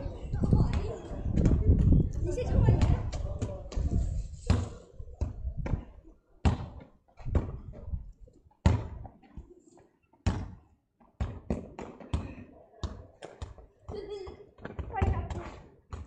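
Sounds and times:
football kicked and bouncing: 2.7s - 8.0s, 8.6s - 9.2s, 10.2s - 16.0s.

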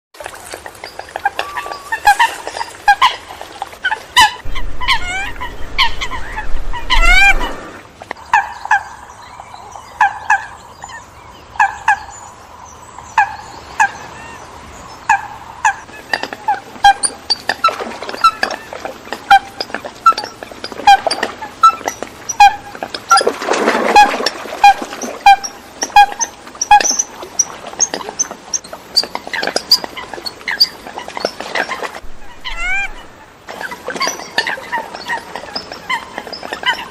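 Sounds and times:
coots calling: 0.8s - 9.1s, 23.9s - 36.9s
low rumble: 4.4s - 7.9s, 32.0s - 33.2s
quick rising chirps: 4.4s - 7.9s, 32.0s - 33.2s.

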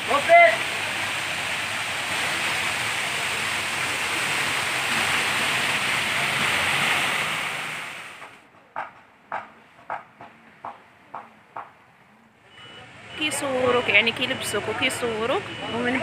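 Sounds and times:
water pouring down rocks: 0.0s - 8.4s.

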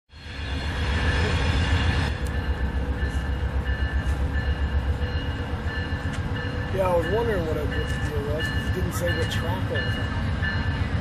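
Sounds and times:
train rumbling: 0.1s - 11.0s
train whining tones: 0.1s - 11.0s.

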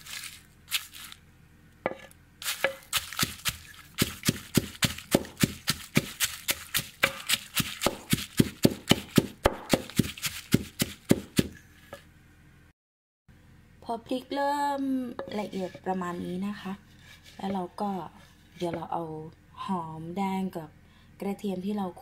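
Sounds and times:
wooden pestle pounding in mortar: 1.9s - 11.6s.

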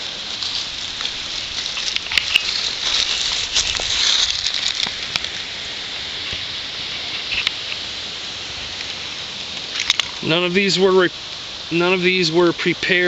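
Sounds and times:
dry leaves rustling: 0.0s - 13.0s.

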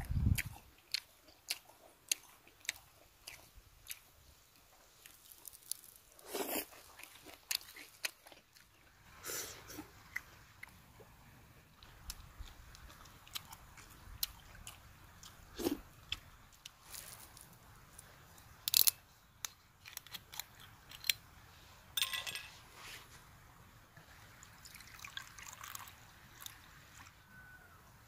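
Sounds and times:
crunching and chewing: 0.0s - 11.1s, 11.7s - 21.5s
tableware clicking: 22.0s - 22.6s.

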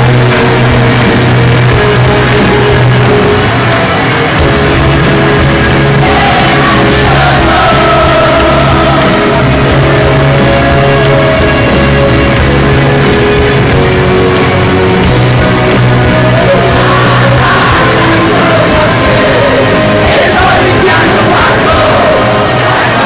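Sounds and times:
live rock band playing: 0.0s - 23.0s
person singing: 6.0s - 12.8s, 15.5s - 23.0s.

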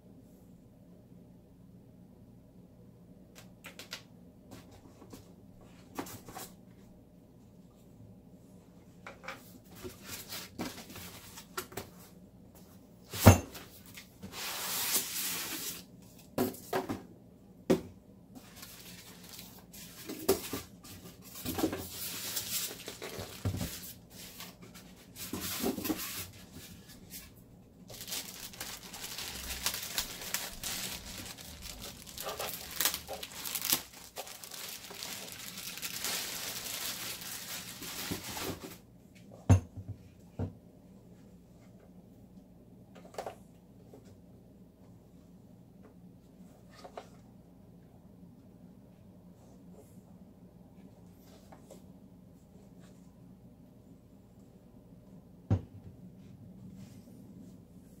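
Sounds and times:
cardboard box and foam handled: 18.4s - 38.8s
plastic bag crinkling: 18.5s - 19.8s, 22.0s - 23.9s, 27.8s - 38.6s.

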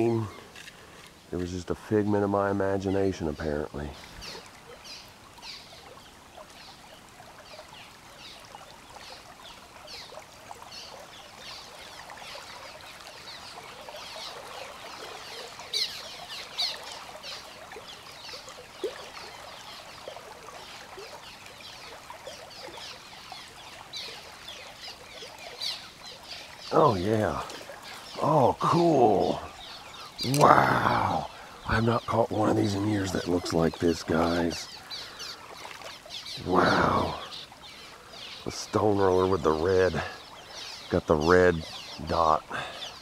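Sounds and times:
river water splashing against wall: 3.8s - 37.8s.

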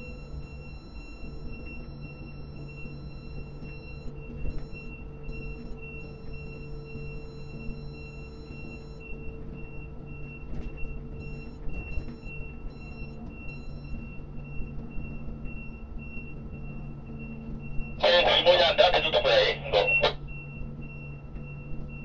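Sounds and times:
high-pitched warning beeper: 0.0s - 22.0s
machinery drone: 0.0s - 22.0s.

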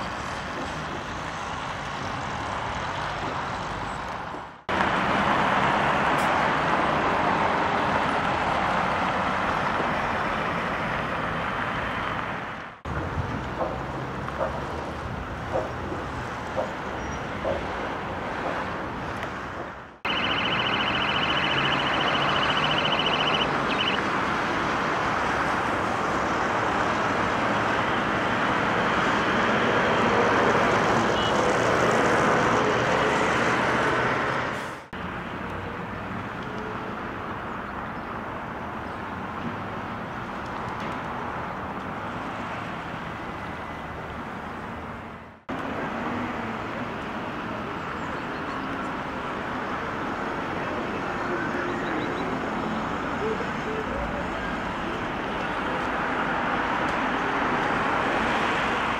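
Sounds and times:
traffic hum: 0.0s - 58.9s
high steady tone: 20.0s - 24.1s.

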